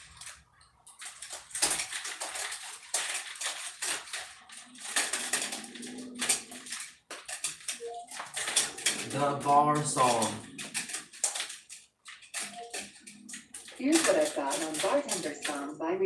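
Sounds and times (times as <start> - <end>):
small objects clattering and rustling: 0.0 - 15.7.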